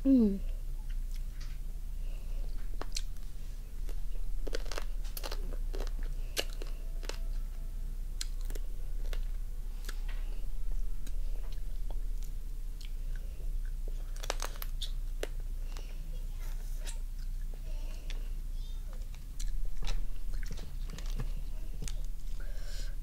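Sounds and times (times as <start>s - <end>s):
person chewing: 0.8s - 7.5s, 8.1s - 16.0s, 18.9s - 22.7s
crab shell crunching: 2.6s - 7.4s, 11.0s - 15.8s.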